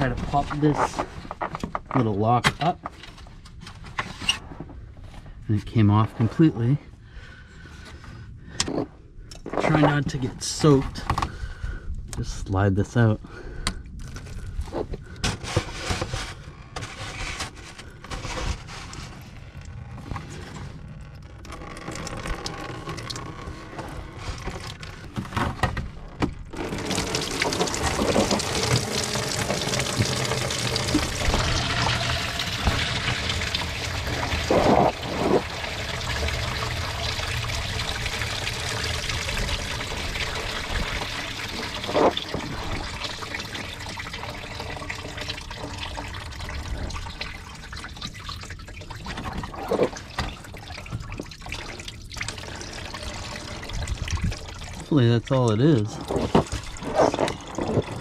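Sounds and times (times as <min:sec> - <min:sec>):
coolant pouring out: 0:17.5 - 0:25.6, 0:26.4 - 0:58.0.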